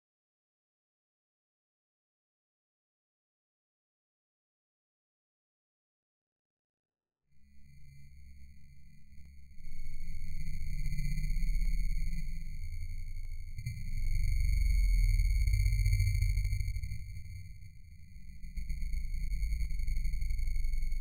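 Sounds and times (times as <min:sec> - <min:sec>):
low muffled rumble: 0:09.6 - 0:21.0.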